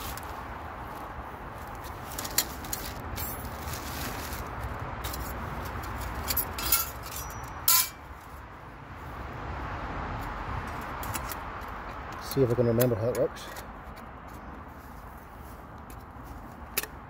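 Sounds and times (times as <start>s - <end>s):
low traffic rumble: 0.0s - 17.0s
metal panels clinking and scraping: 5.0s - 8.1s.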